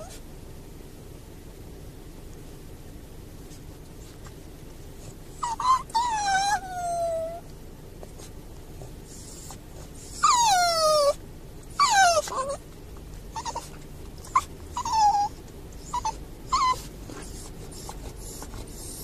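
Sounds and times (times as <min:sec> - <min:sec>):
dog whining: 0:00.0 - 0:00.3, 0:05.3 - 0:07.5, 0:08.8 - 0:19.0.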